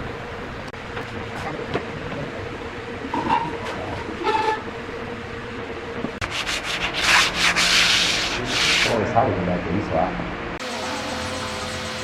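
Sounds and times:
steady low hum: 0.0 - 12.0
hand sanding wood: 6.2 - 9.1.

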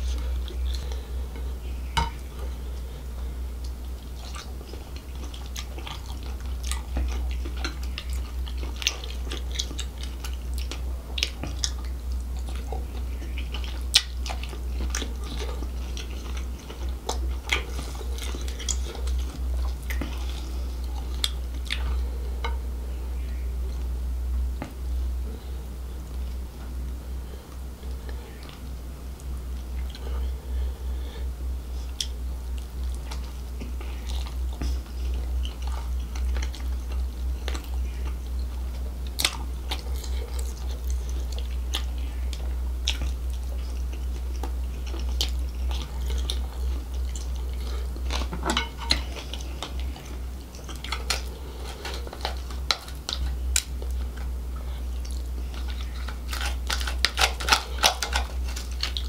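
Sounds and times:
chewing and sucking: 0.0 - 22.6, 31.7 - 59.0
steady low hum: 0.0 - 59.0
crab shell cracking: 55.0 - 59.0.

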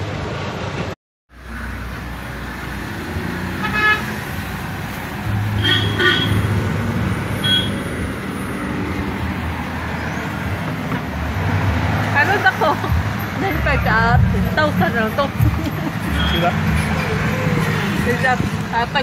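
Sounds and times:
road traffic: 0.0 - 19.0
vehicle engine running: 4.4 - 19.0.

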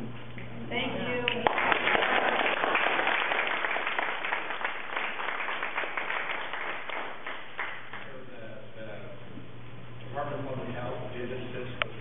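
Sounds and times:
audience applauding: 1.3 - 8.1.

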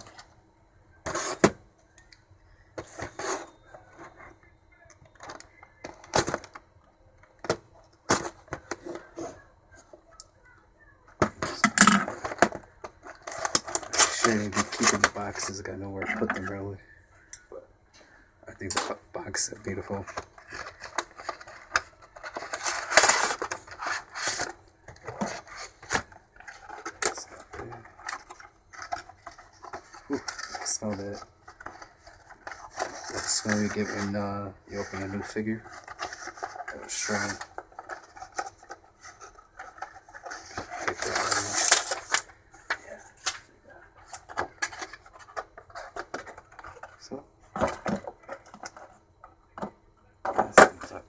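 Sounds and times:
cardboard scraping: 1.0 - 1.6, 2.8 - 4.4, 19.7 - 42.3
handling cardboard box: 2.8 - 4.4
plastic crinkling: 18.5 - 48.9.

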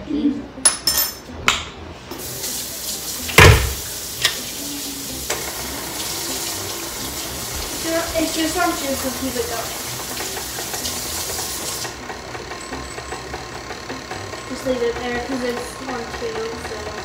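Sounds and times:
electric mixer beating: 3.2 - 17.0
loud knock: 3.4 - 3.8
utensils clicking on bowl: 8.2 - 17.0.

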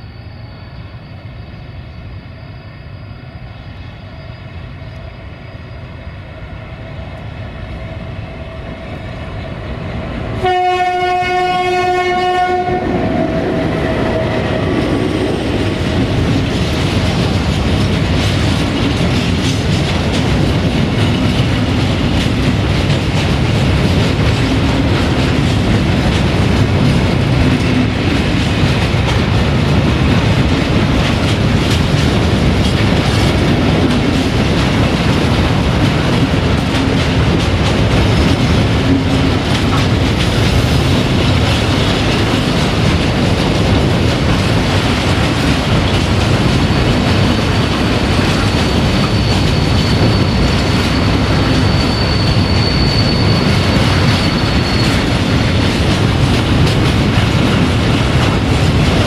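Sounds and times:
diesel locomotive engine drone: 0.0 - 59.0
locomotive horn blast: 10.4 - 13.2
wheels clacking over rail joints: 13.8 - 59.0.

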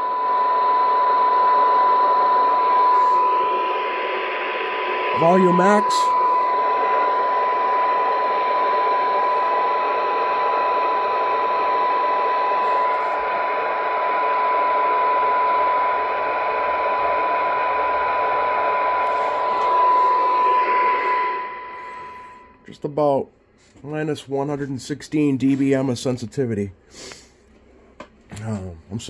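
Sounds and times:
receiver static: 0.0 - 22.6
steady test tone: 0.0 - 23.2.

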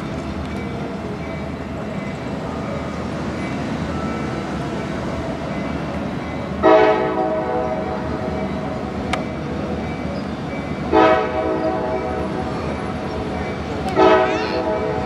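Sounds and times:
train rumble: 0.0 - 15.0
train horn blasts: 6.6 - 8.1, 10.9 - 12.2, 14.0 - 15.0.

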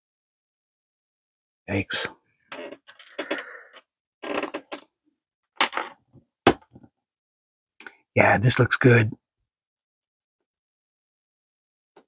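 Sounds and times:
plastic joints creaking and clicking: 2.5 - 5.0, 5.6 - 6.9.

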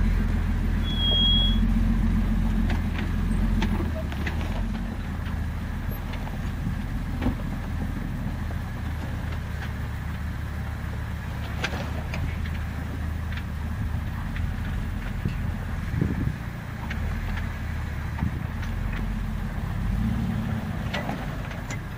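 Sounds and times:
vehicle engine rumbling: 0.0 - 21.9
stones clicking under tyres: 2.5 - 21.9.

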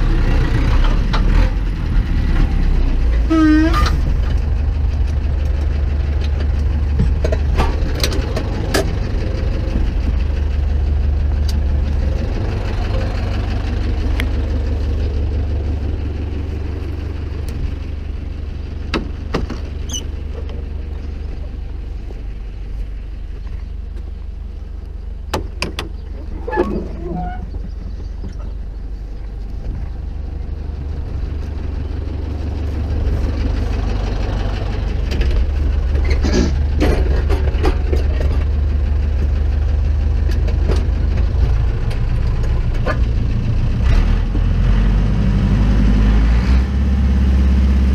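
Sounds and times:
tractor diesel engine idling: 0.0 - 47.9
knocks and clatters: 2.4 - 10.3, 35.0 - 38.7.

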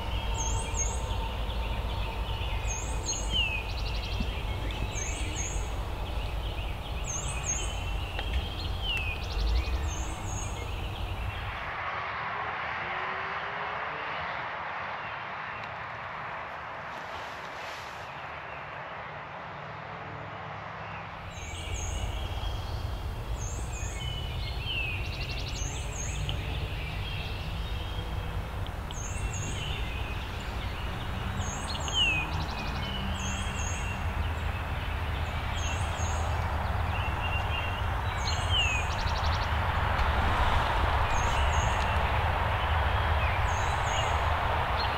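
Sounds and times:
descending bird whistle: 0.0 - 11.6
songbirds chirping: 0.0 - 11.7, 17.9 - 44.9
steady low rumble: 0.0 - 12.0, 21.2 - 44.9.

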